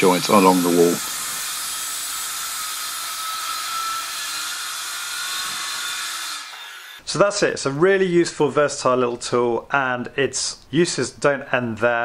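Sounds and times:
circular saw running: 0:00.0 - 0:07.0.

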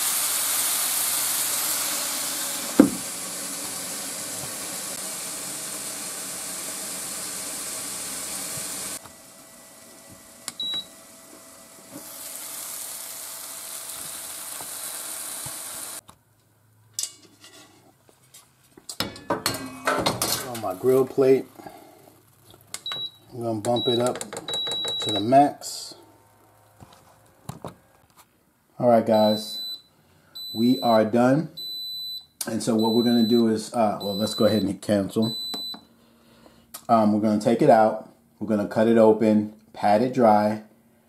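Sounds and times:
griddle beep: 0:10.6 - 0:11.0, 0:22.8 - 0:25.4, 0:29.3 - 0:35.9
beans sizzling in oil: 0:11.9 - 0:16.0, 0:20.4 - 0:23.4.

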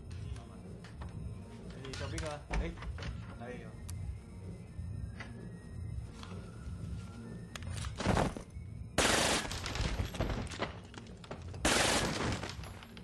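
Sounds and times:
gunfire bursts: 0:09.0 - 0:09.6, 0:11.6 - 0:12.4.

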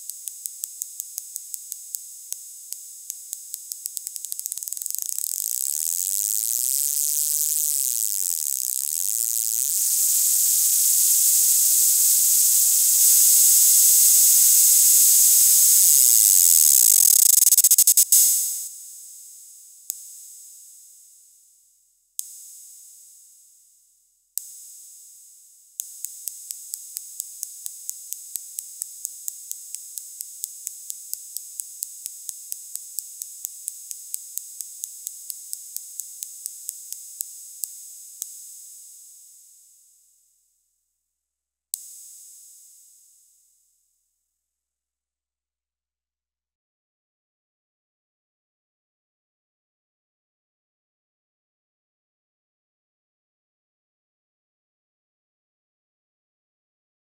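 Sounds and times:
bright dense electronic hiss: 0:12.1 - 0:18.7
electronic cymbal strikes: 0:16.0 - 0:19.0.

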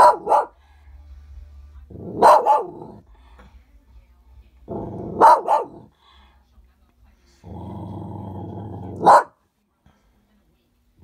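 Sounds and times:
small dog barking: 0:00.0 - 0:00.6, 0:02.1 - 0:03.0, 0:05.0 - 0:05.9, 0:08.9 - 0:09.4
small dog growling: 0:04.7 - 0:05.3, 0:07.4 - 0:09.1.

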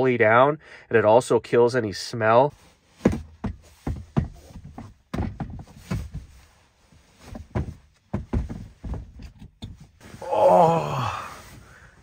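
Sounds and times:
knocks and thuds of objects handled: 0:03.0 - 0:10.1.

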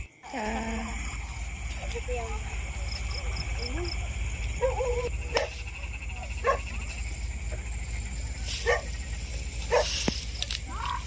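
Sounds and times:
insects chirping at night: 0:00.0 - 0:11.0.

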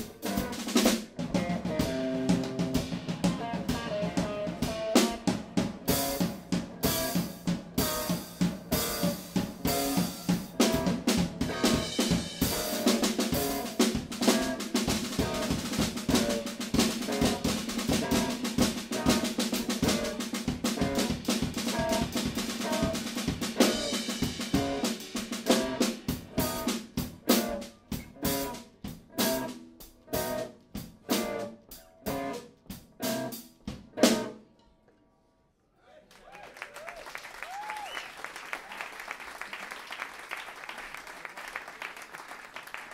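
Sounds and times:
electric guitar: 0:00.0 - 0:34.4
drum kit: 0:00.0 - 0:34.8
audience applause: 0:36.0 - 0:42.9.

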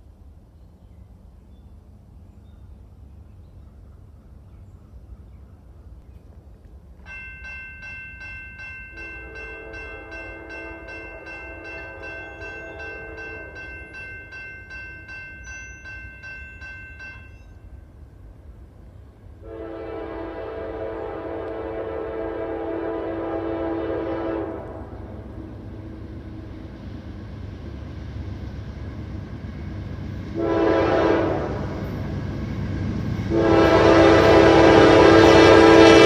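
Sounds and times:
railroad crossing bell ringing: 0:07.0 - 0:18.3
loud locomotive horn blast: 0:09.0 - 0:13.6, 0:19.4 - 0:25.7, 0:30.3 - 0:31.9, 0:33.3 - 0:36.0
distant locomotive horn: 0:09.0 - 0:13.9, 0:19.4 - 0:26.0, 0:30.3 - 0:32.1, 0:33.2 - 0:36.0.

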